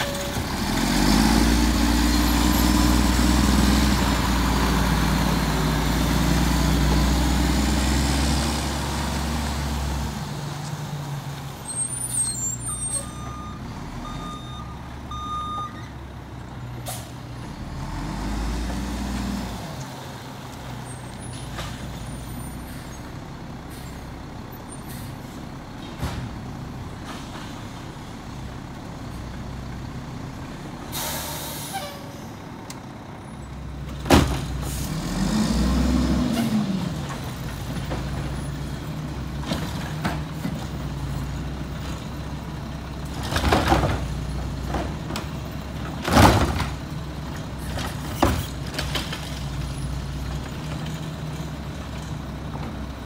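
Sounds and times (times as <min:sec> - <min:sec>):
garbage truck diesel engine: 0:00.0 - 0:53.0
air brakes hissing: 0:30.9 - 0:32.2.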